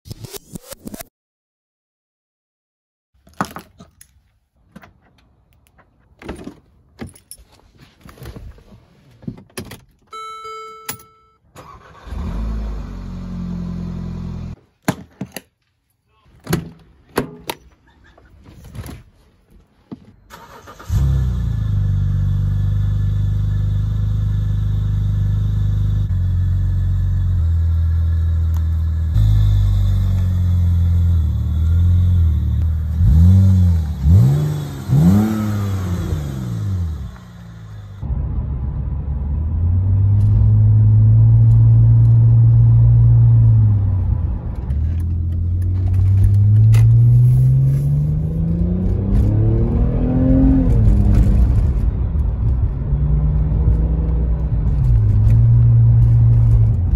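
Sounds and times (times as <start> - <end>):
keys jingling: 6.4 - 7.7
car electronic chime: 10.1 - 11.5
car engine starting and idling: 11.4 - 14.6, 20.0 - 56.9.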